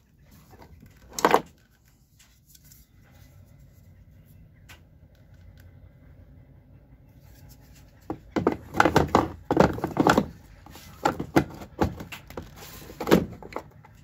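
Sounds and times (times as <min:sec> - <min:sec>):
knocks on plastic case: 0:08.1 - 0:10.4.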